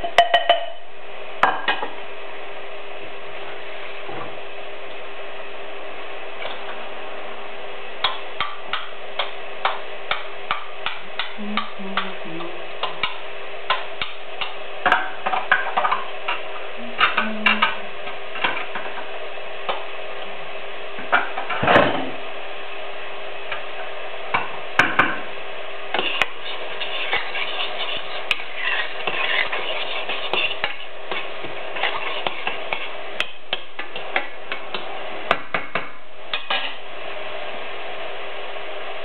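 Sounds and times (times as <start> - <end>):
spoon tapping kitchen bowls: 0.0 - 0.8
steady hiss and hum: 0.0 - 39.0.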